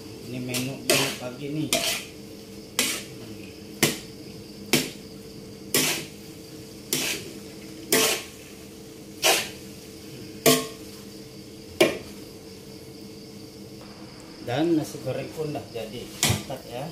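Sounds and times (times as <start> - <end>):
spatula scraping metal wok: 0.5 - 3.2, 5.7 - 6.2, 6.9 - 8.5, 9.2 - 9.7
faint steady hiss: 5.7 - 16.9.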